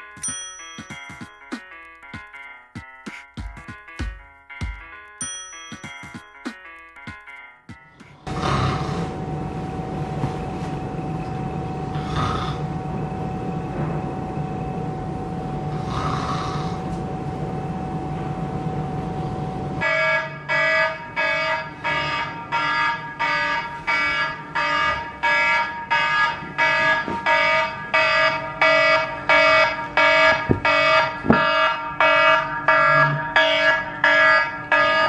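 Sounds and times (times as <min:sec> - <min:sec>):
electronic alarm tone: 0:19.8 - 0:35.0.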